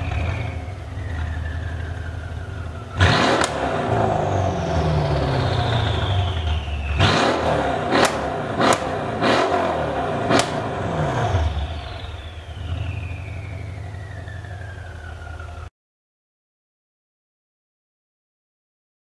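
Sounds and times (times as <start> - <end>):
car engine idling: 0.0 - 15.7
car engine revving: 0.0 - 15.7
exhaust cracks: 0.0 - 15.7
high whine: 0.0 - 15.7.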